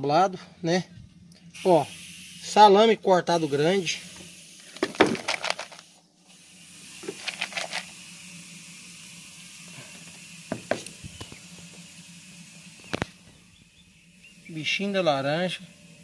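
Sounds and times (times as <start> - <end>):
steady hiss: 0.6 - 16.0
plastic bucket clicks and rattles: 4.8 - 5.8.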